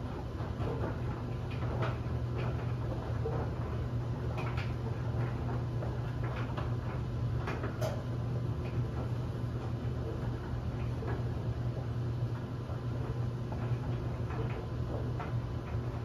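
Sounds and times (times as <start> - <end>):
clothes dryer humming: 0.0 - 16.0.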